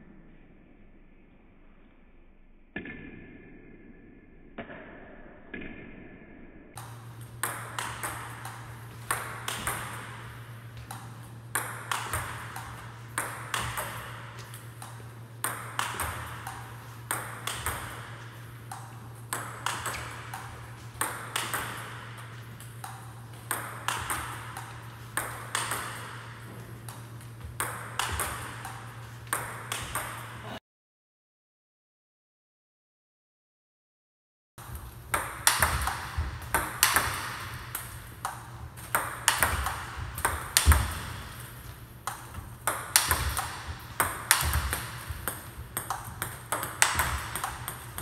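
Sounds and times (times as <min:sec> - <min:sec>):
ping-pong ball bouncing on table: 0:02.8 - 0:03.3, 0:04.6 - 0:05.9, 0:06.8 - 0:30.6, 0:34.6 - 0:48.0
steady low hum: 0:06.7 - 0:30.6, 0:34.6 - 0:48.0
paddle hitting ball sharp clicks: 0:06.8 - 0:30.2, 0:35.1 - 0:48.0.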